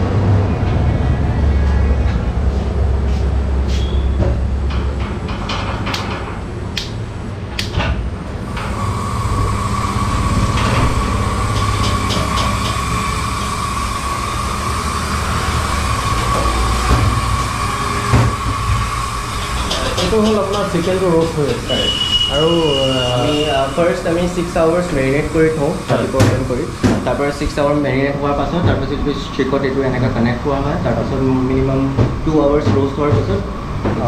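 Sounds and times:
gas burner rotisserie running: 0:00.0 - 0:34.0
thin whine: 0:08.4 - 0:30.8.

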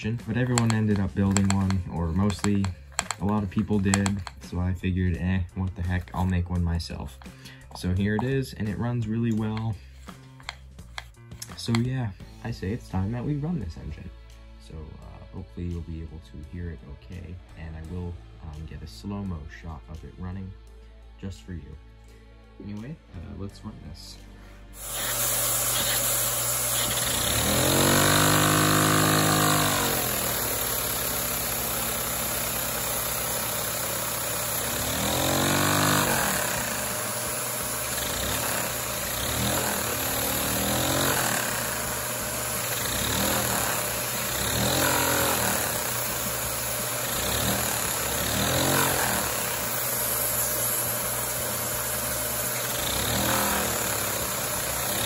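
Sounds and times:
small vacuum engine humming: 0:24.7 - 0:55.0.

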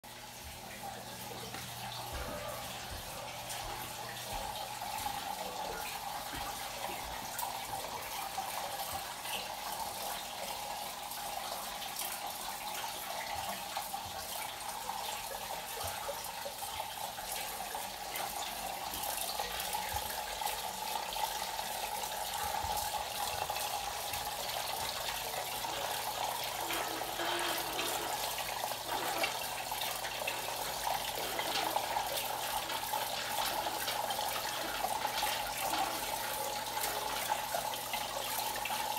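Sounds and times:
water splashing into metal cups: 0:21.7 - 0:38.9.

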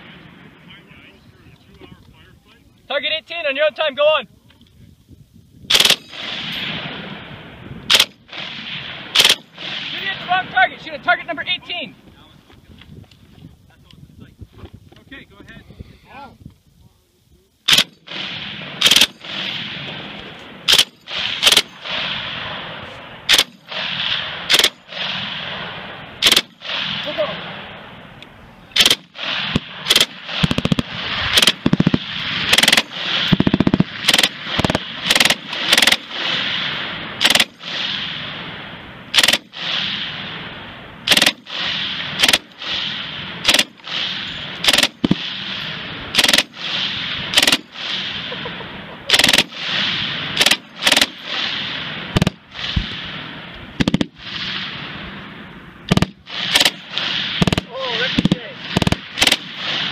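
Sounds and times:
machine gun bursts: 0:05.7 - 0:06.6, 0:07.9 - 0:08.5, 0:09.1 - 0:10.3, 0:17.7 - 0:18.2, 0:18.8 - 0:19.5, 0:20.7 - 0:22.1, 0:23.3 - 0:25.1, 0:26.2 - 0:27.2, 0:28.8 - 0:36.5, 0:37.2 - 0:37.8, 0:39.1 - 0:39.8, 0:41.0 - 0:42.8, 0:43.4 - 0:48.4, 0:49.1 - 0:49.8, 0:50.4 - 0:52.9, 0:55.9 - 0:59.9
gunfire echo: 0:05.7 - 0:12.0, 0:17.7 - 0:59.9.

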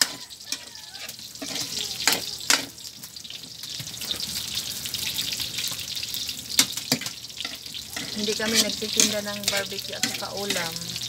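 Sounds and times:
metal spatula knocking wok: 0:00.0 - 0:02.8, 0:06.6 - 0:10.8
meat sizzling in fat: 0:00.0 - 0:11.0.

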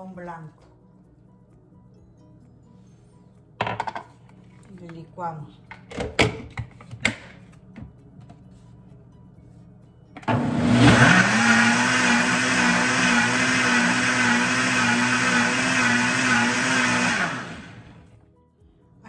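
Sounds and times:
blender motor whining: 0:10.2 - 0:18.1.

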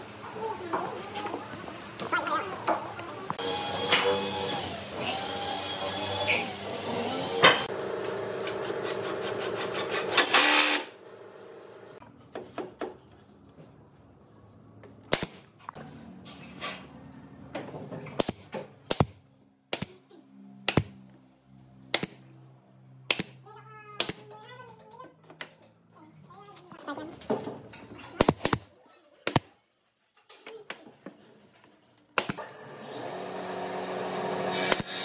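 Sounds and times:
power tool running: 0:03.4 - 0:12.0, 0:32.6 - 0:35.0.

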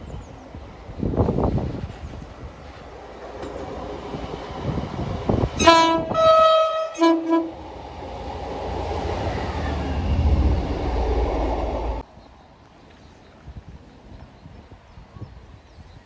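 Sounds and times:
diesel train engines rumbling: 0:00.0 - 0:12.4
train two-tone horn: 0:05.6 - 0:07.9.

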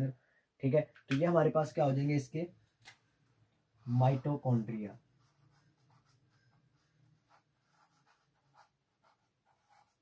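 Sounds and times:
marker pen scratching on paper: 0:05.2 - 0:10.0.

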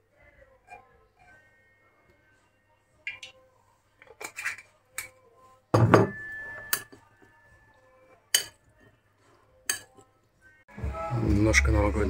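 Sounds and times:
cutlery and dishes clinking: 0:04.0 - 0:07.4, 0:08.1 - 0:10.2.

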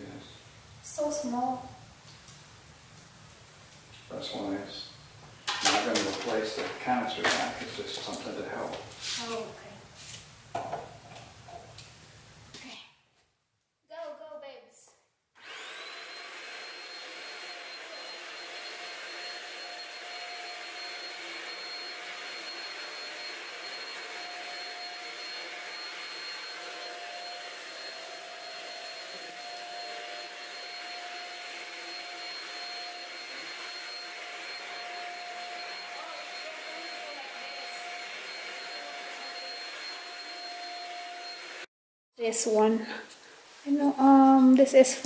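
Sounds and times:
stick vacuum running: 0:05.4 - 0:08.8, 0:15.4 - 0:41.7.

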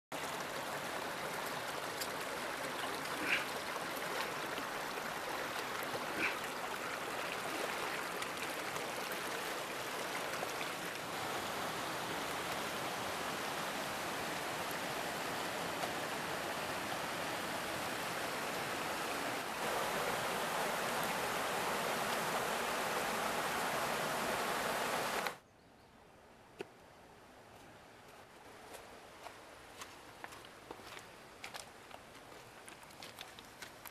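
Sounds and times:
river rushing over rocks: 0:00.2 - 0:25.4.

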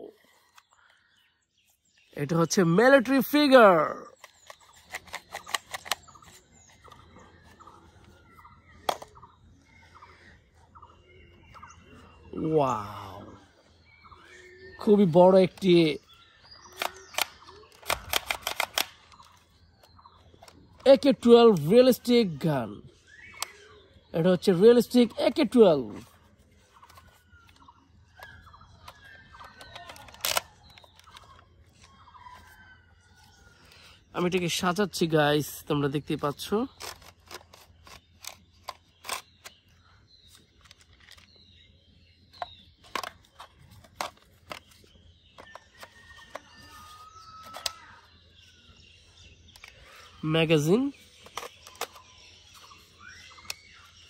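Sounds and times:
faint birds chirping: 0:00.0 - 0:54.0
plastic toy rifle clicks and rattles: 0:04.0 - 0:07.0, 0:16.7 - 0:21.7, 0:28.2 - 0:32.5, 0:36.6 - 0:41.4, 0:42.3 - 0:46.4, 0:47.4 - 0:47.8, 0:49.5 - 0:49.9, 0:50.7 - 0:52.7
sharp plastic snap: 0:16.7 - 0:19.3.

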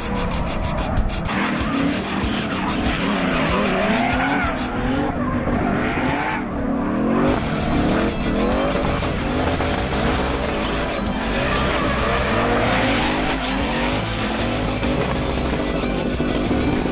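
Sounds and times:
car engine revving: 0:00.0 - 0:16.9
tyres screeching: 0:00.1 - 0:16.9.

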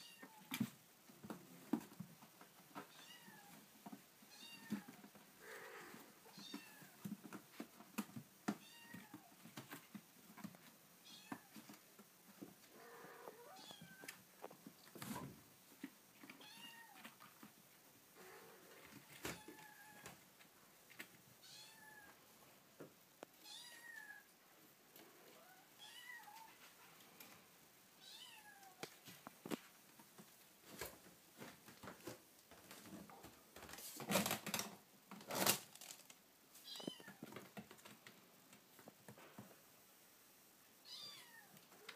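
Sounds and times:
rustling: 0:24.9 - 0:39.8.

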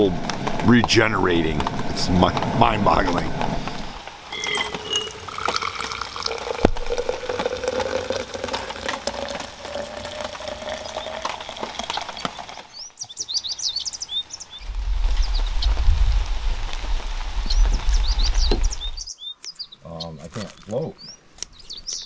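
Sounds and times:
birds chirping: 0:00.0 - 0:22.0
coffee pouring into metal mug: 0:04.3 - 0:12.7
low rumble: 0:14.6 - 0:19.0.

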